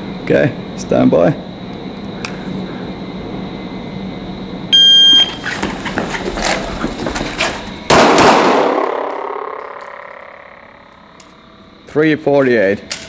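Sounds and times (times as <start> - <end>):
shot timer beep: 4.8 - 5.4
pistol shots echoing: 7.9 - 10.5.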